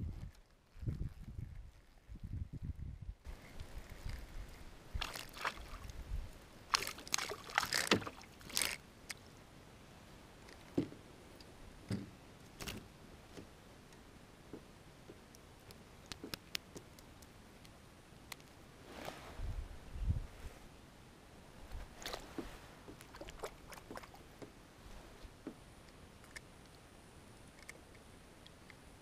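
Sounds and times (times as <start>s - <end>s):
paddle strokes splashing: 4.9s - 6.0s, 6.7s - 8.8s, 21.9s - 24.4s
small knocks: 11.8s - 13.5s.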